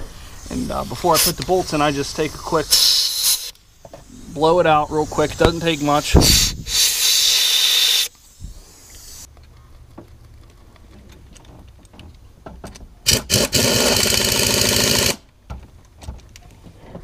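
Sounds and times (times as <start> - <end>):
compressed air blowgun blasting: 0.0 - 9.3, 13.1 - 15.2.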